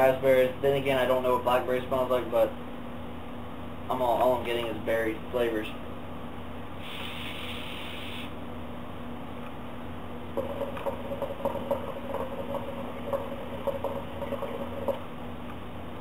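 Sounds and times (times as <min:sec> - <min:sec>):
hookah water bubbling: 0:10.4 - 0:15.2.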